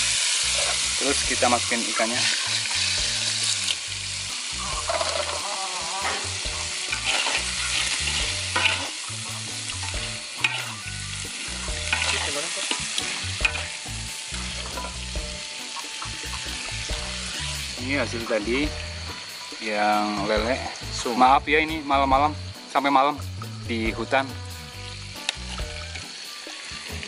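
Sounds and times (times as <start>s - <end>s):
sauce sizzling in a wok: 0.0s - 27.0s
metal spatula scraping a pan: 0.4s - 1.0s, 1.9s - 3.6s, 4.5s - 15.2s.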